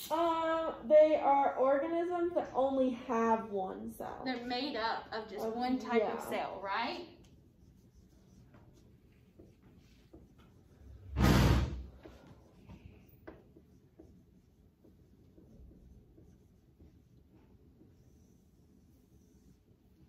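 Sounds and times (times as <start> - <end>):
marker squeaking on whiteboard: 7.0 - 10.9, 11.9 - 20.0
loud short noise: 11.1 - 11.8.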